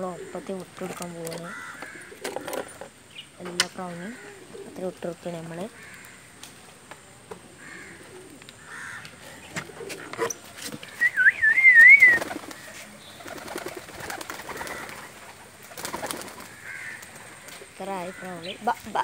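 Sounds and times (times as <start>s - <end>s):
loud warbling whistle: 11.0s - 12.2s.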